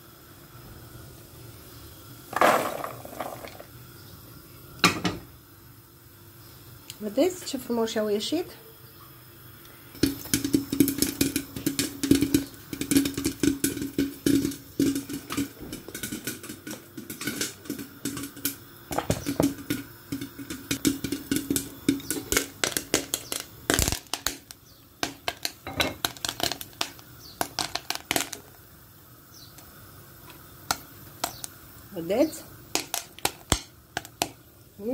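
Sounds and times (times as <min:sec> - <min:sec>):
popcorn popping in a pot: 0:00.0 - 0:05.6, 0:06.4 - 0:34.9.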